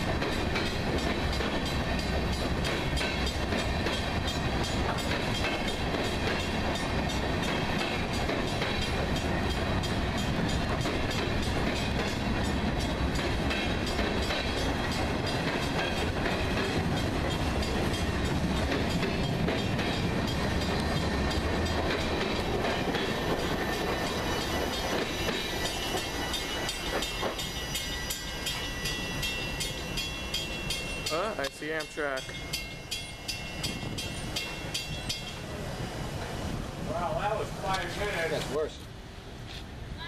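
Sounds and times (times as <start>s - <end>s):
train wheels on rails: 0.0s - 40.0s.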